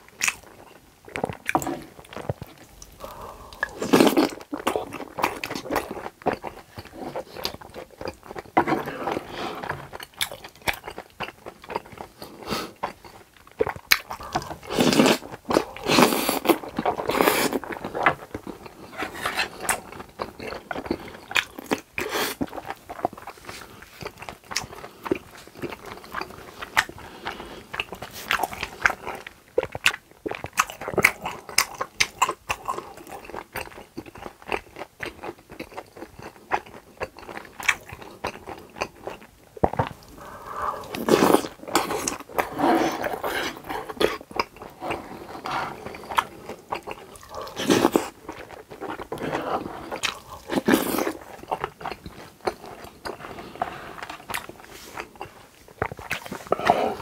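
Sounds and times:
wet chewing mouth clicks: 19.6 - 53.2, 54.0 - 57.0.

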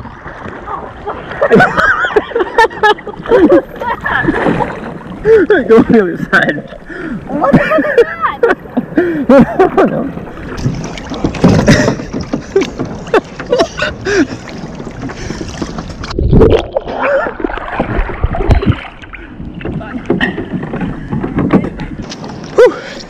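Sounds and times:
water sloshing against hull: 0.0 - 23.0
knocks on hull: 10.6 - 13.8, 19.6 - 22.5.

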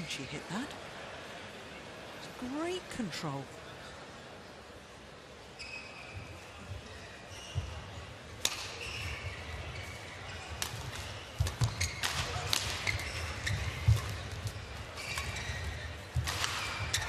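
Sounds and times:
rackets striking shuttlecock: 8.3 - 17.0.

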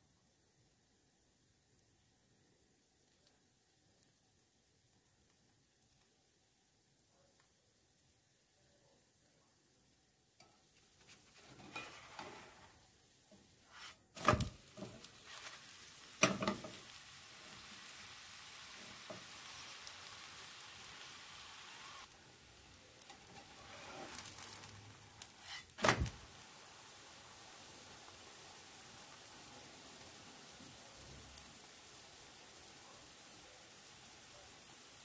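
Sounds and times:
crepe sizzling in a frying pan: 0.0 - 8.5, 9.6 - 35.0.

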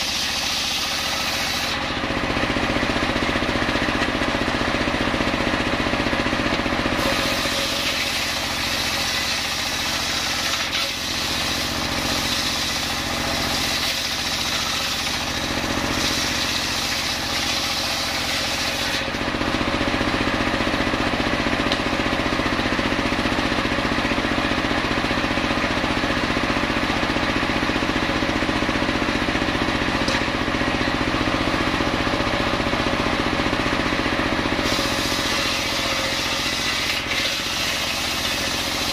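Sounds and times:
circular saw blade cutting wood: 0.0 - 4.1, 6.0 - 19.7, 34.5 - 38.9
engine running: 0.0 - 38.9.

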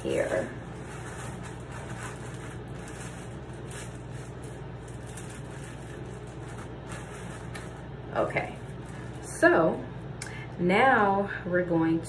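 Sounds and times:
shower cap rustling: 0.0 - 7.9
low background hum: 0.0 - 12.0.

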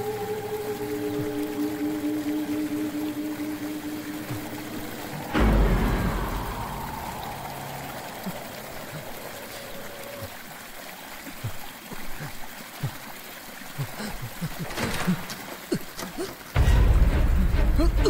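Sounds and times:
faint low drips: 0.0 - 18.0
trickling water: 0.0 - 18.0
deep hit: 5.3 - 8.7, 16.6 - 18.0.

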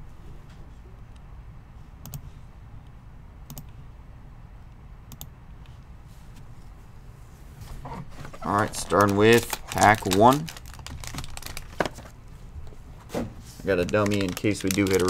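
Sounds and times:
low steady hum: 0.0 - 15.0
sharp clicks: 3.5 - 3.7, 5.1 - 5.3.

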